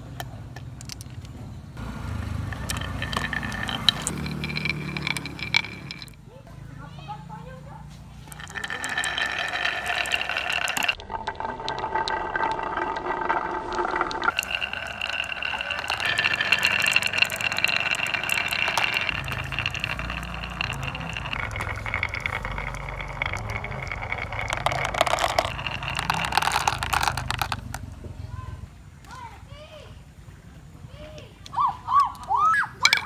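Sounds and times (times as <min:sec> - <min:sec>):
marbles rolling on wood: 0:00.0 - 0:06.2, 0:08.2 - 0:28.0, 0:32.1 - 0:33.0
deeper rumble: 0:08.4 - 0:28.8.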